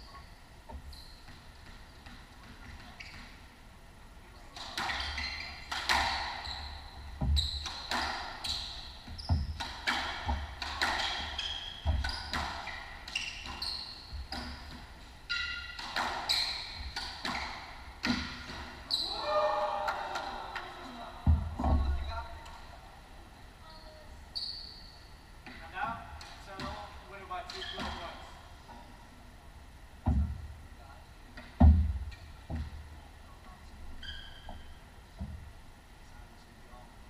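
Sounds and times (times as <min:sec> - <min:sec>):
shoes squeaking on hardwood floor: 0:00.0 - 0:02.0, 0:02.6 - 0:03.4, 0:04.9 - 0:19.1, 0:27.5 - 0:28.3, 0:34.0 - 0:34.8
squash ball struck by rackets: 0:15.8 - 0:18.7.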